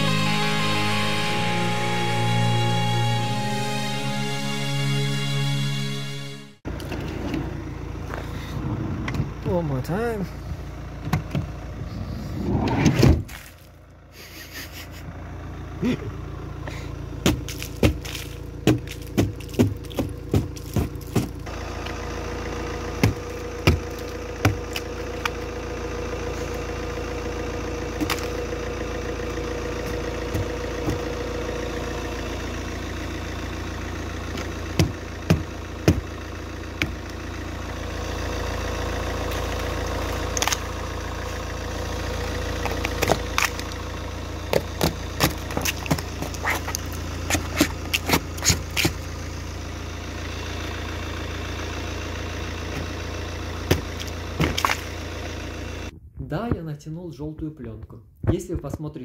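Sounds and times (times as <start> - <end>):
car engine idling: 0.0 - 56.0
ice cracking and knocking: 17.3 - 21.4, 44.6 - 49.0, 53.7 - 54.9
ice chunks falling on asphalt: 17.3 - 21.5, 42.6 - 43.8, 44.6 - 49.0, 53.7 - 54.9.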